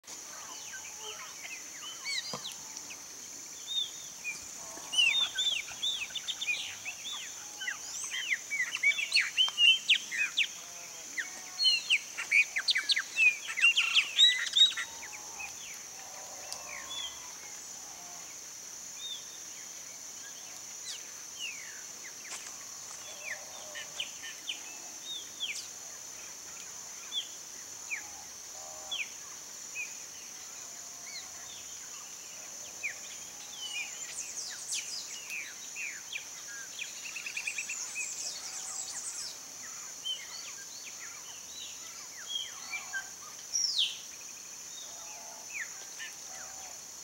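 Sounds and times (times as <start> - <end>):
steady high hiss: 0.0 - 47.0
blackbirds singing: 3.6 - 15.8.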